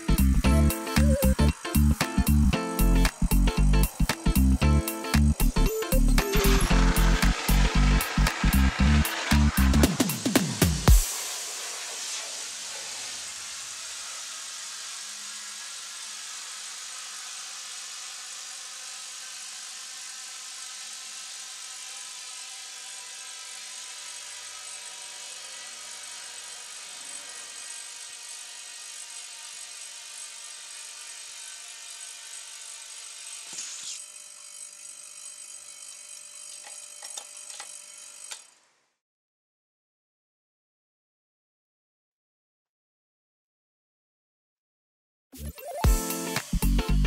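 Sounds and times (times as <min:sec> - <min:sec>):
compressed air hissing: 0:00.0 - 0:15.4.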